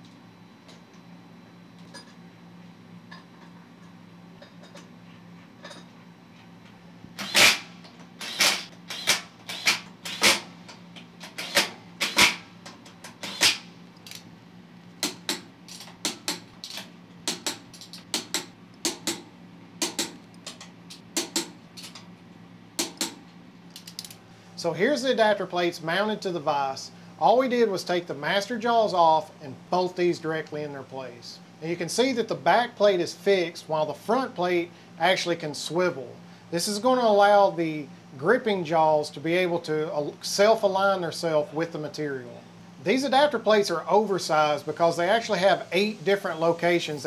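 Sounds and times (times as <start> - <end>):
low steady hum: 0.0 - 47.0
ratchet wrench clicking: 7.2 - 10.4, 11.2 - 12.4, 13.1 - 14.2.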